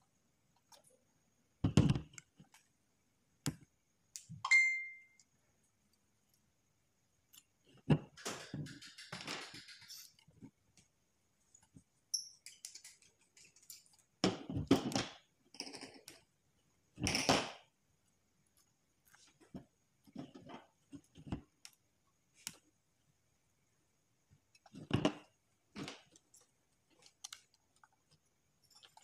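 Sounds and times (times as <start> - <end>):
small metal clicks and taps: 7.3 - 10.9, 11.6 - 14.1.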